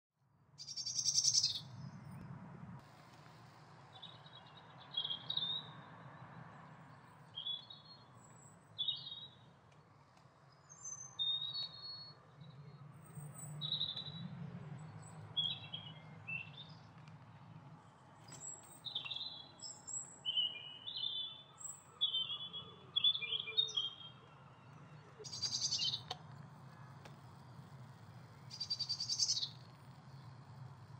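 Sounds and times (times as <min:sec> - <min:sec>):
birds chirping and singing: 0:00.6 - 0:01.6, 0:18.4 - 0:24.2, 0:25.2 - 0:26.1, 0:28.5 - 0:29.7.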